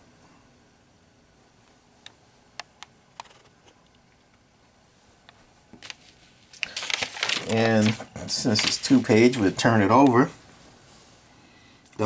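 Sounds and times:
taps and rustles of paper: 3.2s - 3.6s, 5.7s - 10.3s
paper flyer handling: 5.8s - 10.3s.

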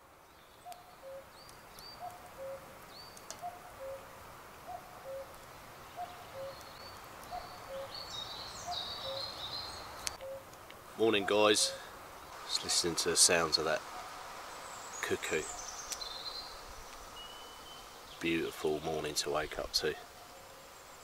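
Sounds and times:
small birds chirping: 0.0s - 21.0s
songbird twittering: 0.2s - 4.1s, 4.7s - 19.1s
cuckoo calling: 0.6s - 14.2s.

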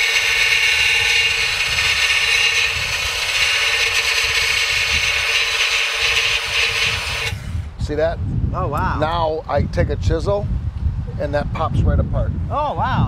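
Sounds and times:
belt sander grinding metal: 0.0s - 7.6s.

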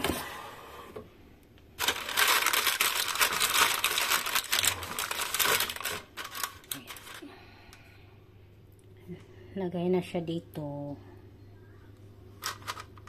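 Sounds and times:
paper liner crinkling: 1.8s - 7.2s.

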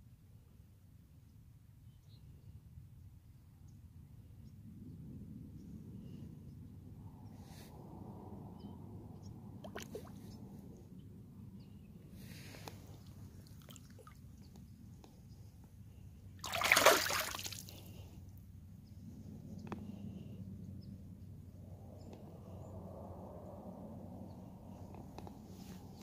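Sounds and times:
fish splashing in water: 9.6s - 10.2s, 13.4s - 14.2s, 16.4s - 17.8s
water sloshing and trickling: 9.6s - 10.4s, 12.6s - 14.6s, 16.4s - 18.0s.

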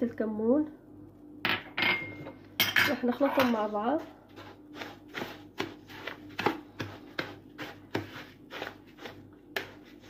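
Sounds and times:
wooden spoon scraping a bowl: 2.9s - 10.0s.

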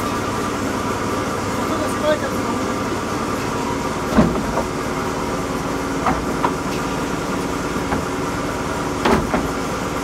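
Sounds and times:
wood chipper machine hum: 0.0s - 10.0s
sharp knocks and clatters: 6.0s - 6.9s, 9.0s - 9.6s.

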